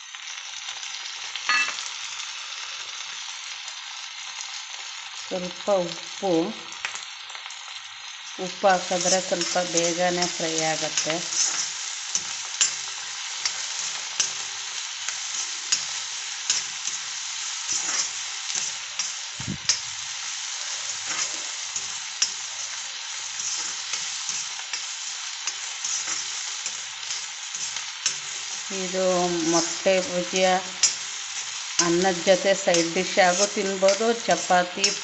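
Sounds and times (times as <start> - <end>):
vegetables sizzling in hot oil: 0.0 - 35.0
metal spatula scraping pan: 10.6 - 12.8, 20.6 - 22.5, 23.3 - 24.7.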